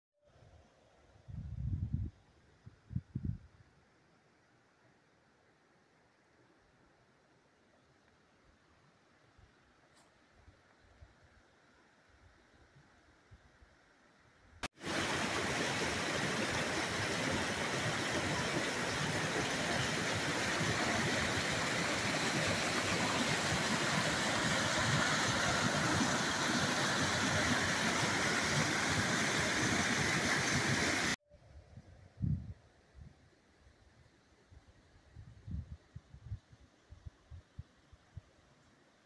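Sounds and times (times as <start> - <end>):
water rushing over rocks: 14.7 - 31.2.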